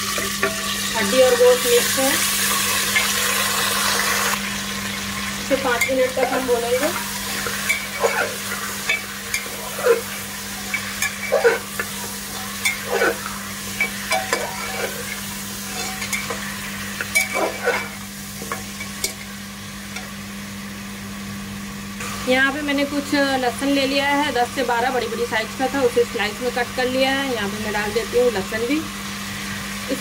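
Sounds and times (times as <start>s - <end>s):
meat sizzling in hot oil: 0.0s - 30.0s
steady low hum: 4.3s - 28.1s
ladle scraping and clinking pot: 5.7s - 19.3s.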